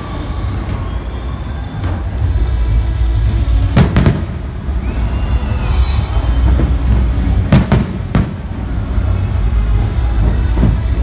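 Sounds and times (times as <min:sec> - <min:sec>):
continuous low rumble: 0:00.0 - 0:11.0
fireworks bangs: 0:03.7 - 0:05.0, 0:06.4 - 0:08.9.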